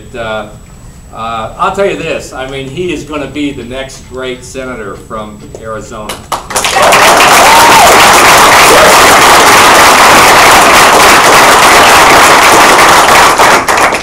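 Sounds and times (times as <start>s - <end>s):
audience applause: 6.5s - 14.0s.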